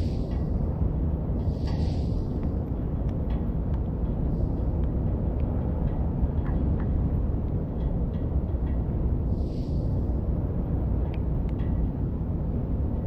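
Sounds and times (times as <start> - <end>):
low street rumble: 0.0 - 13.0.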